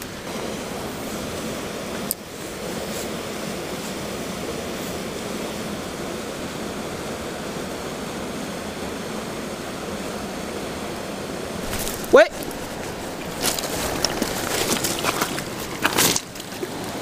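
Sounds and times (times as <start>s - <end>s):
river water rushing over rocks: 11.6s - 17.0s.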